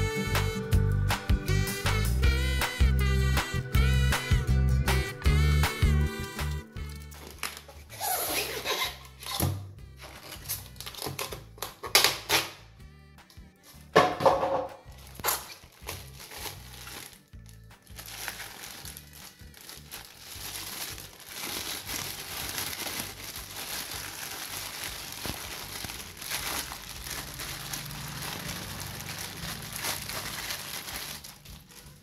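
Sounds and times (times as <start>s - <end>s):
background music: 0.0s - 32.0s
plastic bag crinkling: 6.9s - 9.2s, 15.0s - 32.0s.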